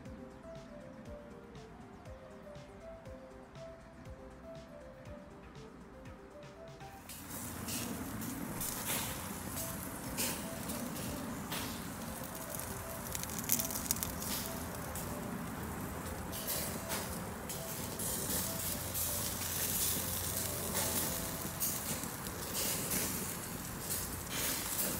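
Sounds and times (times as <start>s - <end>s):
crackles and pops from coals: 7.1s - 24.9s
food sizzling on a grill: 7.1s - 24.9s.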